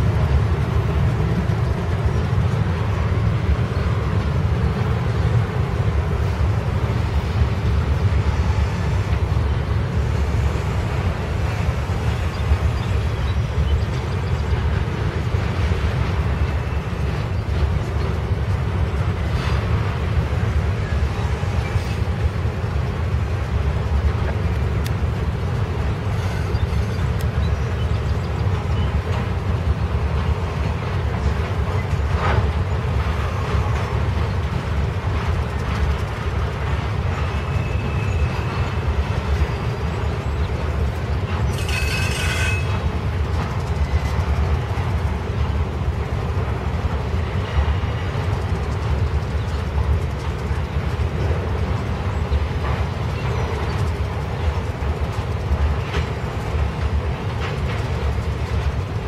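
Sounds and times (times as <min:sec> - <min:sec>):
train wheels rumbling on rail: 0:00.0 - 0:59.0
high squeal: 0:41.5 - 0:42.8.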